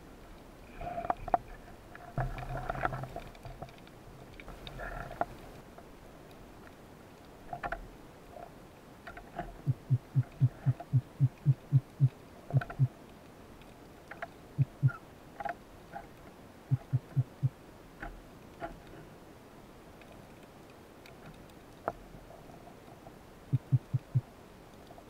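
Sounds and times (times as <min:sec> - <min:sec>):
faint sharp clicks: 0:09.0 - 0:19.0
low underwater pulses: 0:09.5 - 0:12.9, 0:14.6 - 0:15.0, 0:16.7 - 0:17.6, 0:23.5 - 0:24.3.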